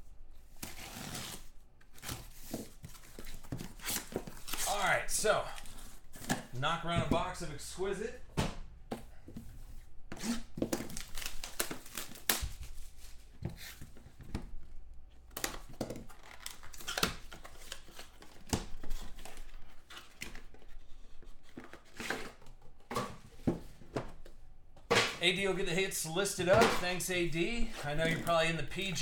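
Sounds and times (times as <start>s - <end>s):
plastic wrap tearing and crinkling: 10.2s - 13.2s, 15.4s - 20.2s.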